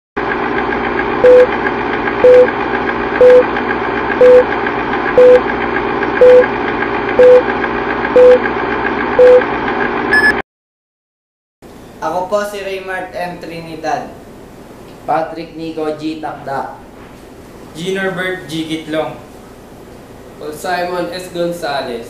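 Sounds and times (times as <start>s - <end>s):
film projector whirr and rattle: 0.2s - 10.1s
short beeps: 1.2s - 1.5s, 2.2s - 2.5s, 3.2s - 3.4s, 4.2s - 4.4s, 5.2s - 5.4s, 6.2s - 6.5s, 7.2s - 7.4s, 8.2s - 8.4s, 9.2s - 9.4s, 10.1s - 10.4s.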